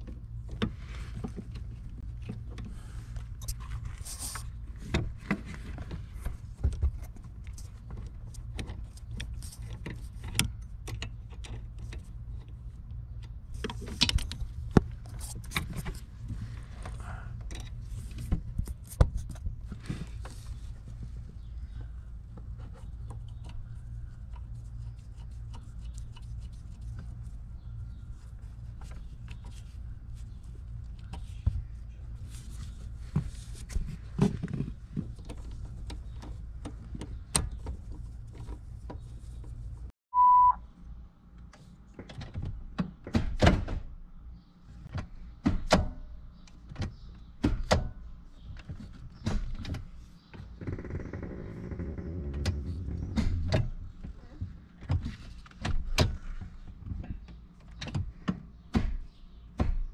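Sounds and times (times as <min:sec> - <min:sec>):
short beep: 0:40.1 - 0:40.6.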